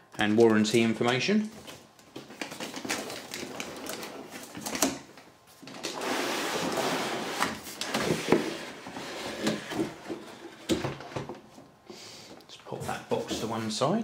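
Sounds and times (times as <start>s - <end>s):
cardboard scraping and sliding: 5.9s - 10.6s.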